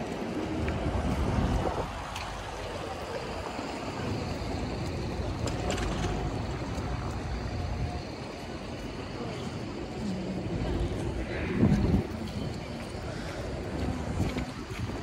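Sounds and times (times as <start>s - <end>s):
wind: 0.0s - 15.0s.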